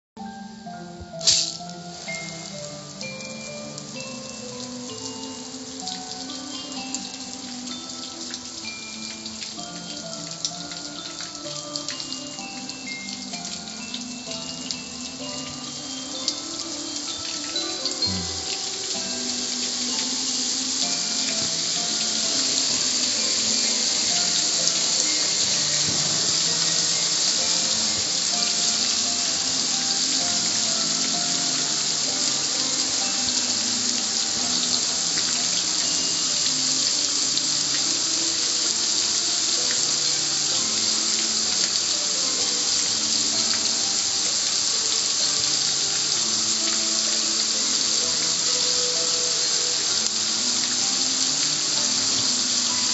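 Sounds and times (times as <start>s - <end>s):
quiet tune: 0.2s - 37.2s
hose spray hissing and splashing: 1.1s - 52.9s.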